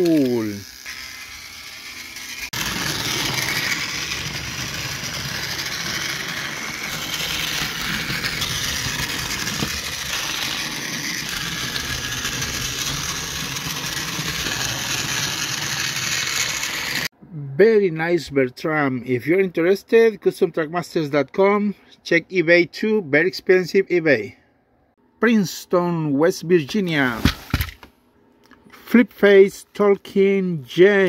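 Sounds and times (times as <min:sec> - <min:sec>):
toy engine motor whirring: 0:00.0 - 0:17.1
wheels rattling on plastic track: 0:00.0 - 0:17.1.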